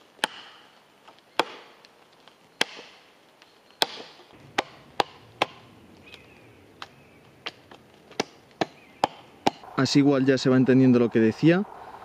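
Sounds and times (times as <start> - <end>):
axe chopping wood: 0.2 - 0.6, 1.4 - 1.8, 2.6 - 3.0, 3.8 - 5.7, 6.8 - 9.6.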